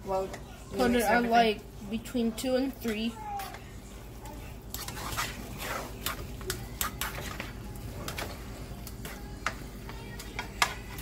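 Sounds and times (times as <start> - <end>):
spatula and fork tapping a pan: 9.0 - 11.0.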